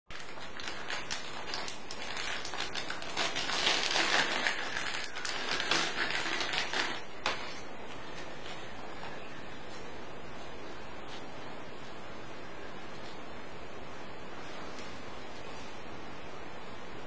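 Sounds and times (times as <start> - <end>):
plastic packet crinkling: 0.1 - 7.7.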